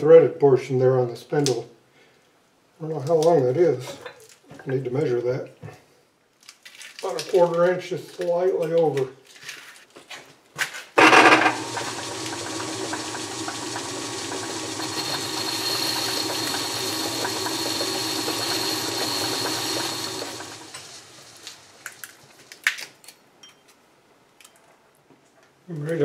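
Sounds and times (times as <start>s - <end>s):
metal lathe humming and whining: 11.0s - 21.8s.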